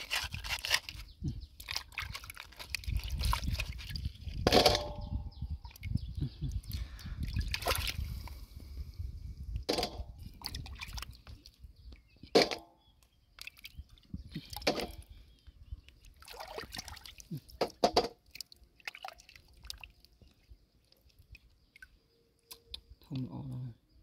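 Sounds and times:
muddy water splashing: 0:00.0 - 0:05.0, 0:07.2 - 0:08.2, 0:09.7 - 0:11.6, 0:16.0 - 0:22.5.

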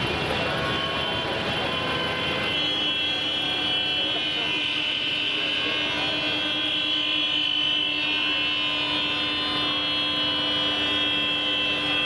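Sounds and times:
steady mechanical drone: 0:00.0 - 0:06.8.

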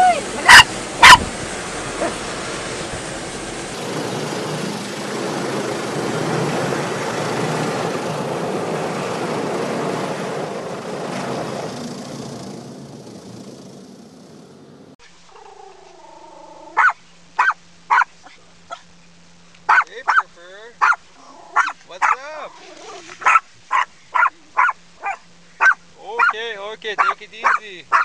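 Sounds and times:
muffled car wash machinery: 0:00.0 - 0:15.2.

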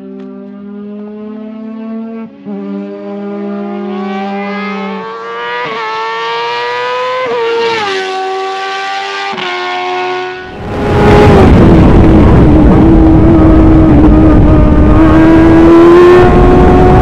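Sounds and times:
race car engine accelerating: 0:00.0 - 0:17.0
steady low drone: 0:10.4 - 0:17.0.

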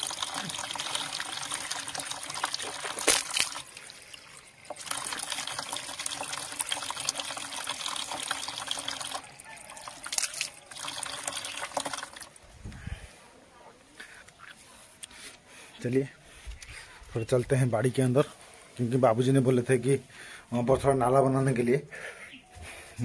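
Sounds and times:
water trickling from a tap: 0:00.0 - 0:12.4.

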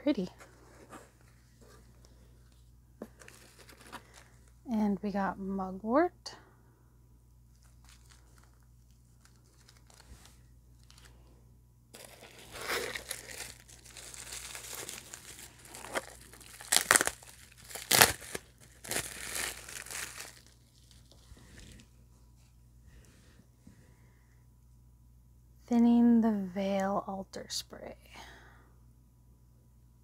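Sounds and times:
bubble wrap crinkling: 0:00.2 - 0:04.6, 0:07.5 - 0:11.2, 0:12.0 - 0:21.9.

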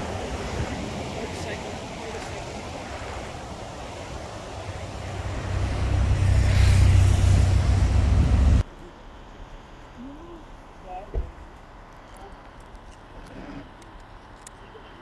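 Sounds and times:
steady rushing noise: 0:00.0 - 0:08.7
low engine rumble: 0:04.2 - 0:08.6.

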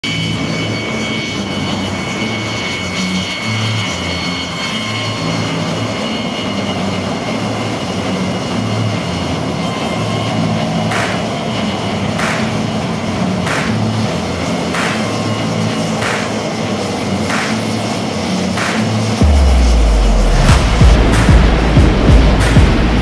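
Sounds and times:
jet engines roaring with whine: 0:00.0 - 0:23.0
burst of rushing noise: 0:12.2 - 0:23.0.

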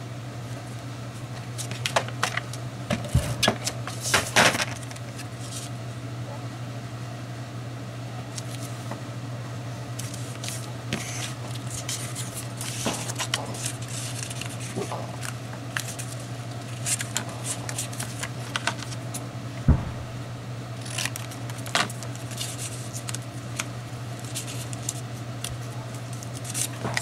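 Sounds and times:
steady low hum: 0:00.0 - 0:27.0
paper rustling and tapping: 0:10.0 - 0:19.0.

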